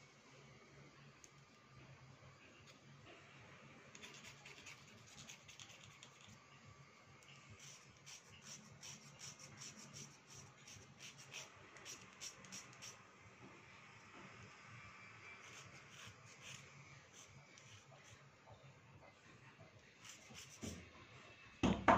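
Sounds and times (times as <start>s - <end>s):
metal blade scratching slate pencil: 4.0s - 6.4s, 7.6s - 13.0s, 15.4s - 18.2s.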